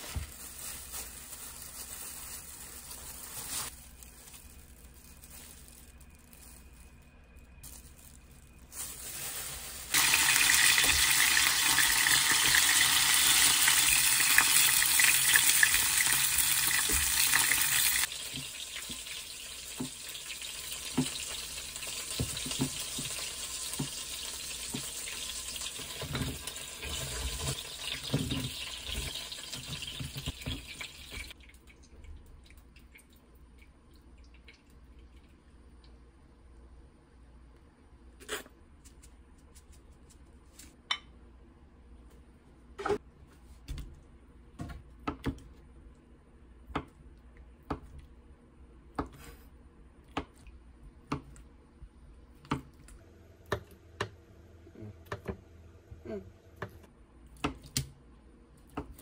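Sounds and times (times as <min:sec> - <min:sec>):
shrimp sizzling in hot oil: 0:09.4 - 0:31.4.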